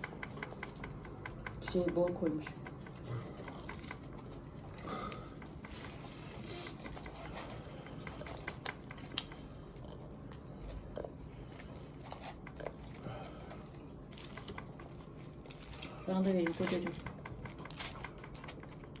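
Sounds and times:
person chewing food: 0:02.6 - 0:16.0.

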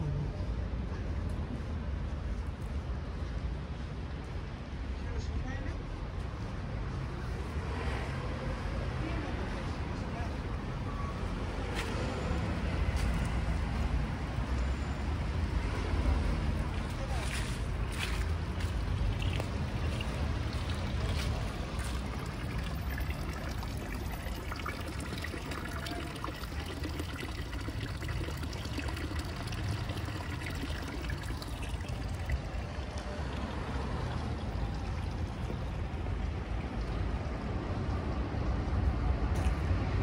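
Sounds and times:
running water rushing: 0:17.9 - 0:37.8.

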